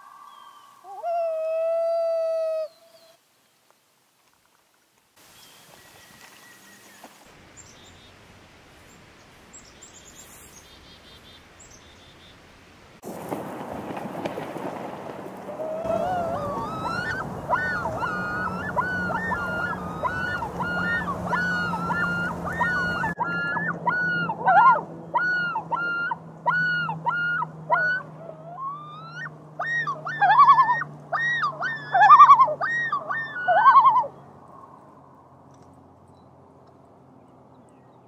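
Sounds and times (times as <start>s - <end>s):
loons calling: 0.0s - 3.2s, 15.5s - 35.0s.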